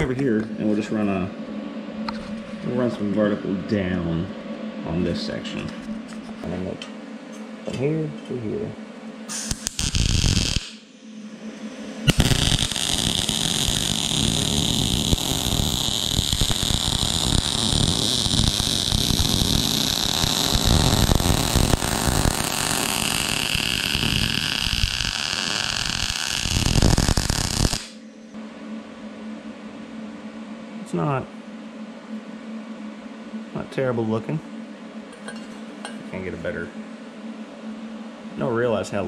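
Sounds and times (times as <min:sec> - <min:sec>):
welding arc: 0:09.3 - 0:10.8, 0:12.0 - 0:28.0.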